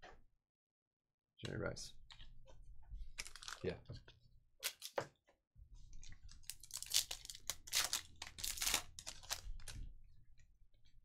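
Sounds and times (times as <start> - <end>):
plastic foil wrapper tearing: 3.2 - 3.6, 4.6 - 5.0, 6.4 - 9.8
wrapper crinkling: 3.2 - 3.7, 6.3 - 9.8.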